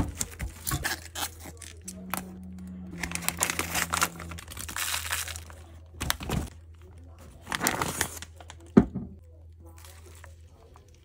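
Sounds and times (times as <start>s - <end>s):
low steady hum: 0.1s - 11.0s
plastic bag crinkling: 3.0s - 6.5s.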